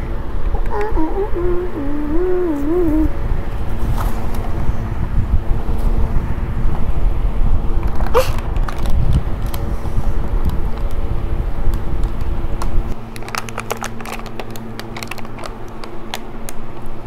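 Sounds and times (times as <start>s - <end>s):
fan rumble and hum: 0.0s - 17.0s
wrapping rustling: 13.1s - 16.6s.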